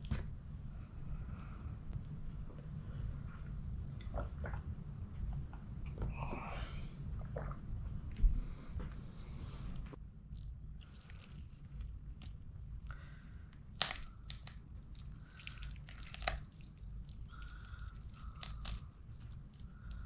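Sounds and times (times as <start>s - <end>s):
wet tearing of meat: 13.8s - 19.6s.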